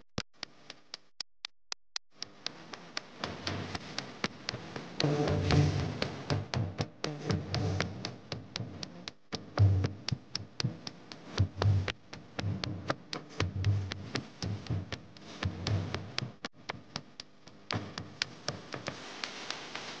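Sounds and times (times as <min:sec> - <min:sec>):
sharp rhythmic clicks: 0:02.0 - 0:20.0
low pulsing beats: 0:03.4 - 0:16.4.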